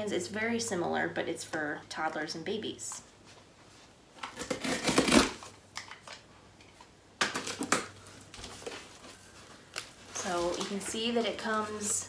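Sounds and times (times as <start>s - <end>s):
packing tape tearing: 4.2s - 6.2s.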